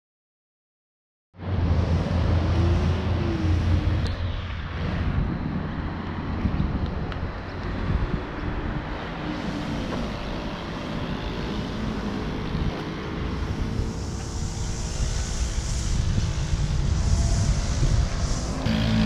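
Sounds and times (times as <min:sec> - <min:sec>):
steady traffic hum: 0:01.4 - 0:19.0
vehicle passing: 0:01.4 - 0:19.0.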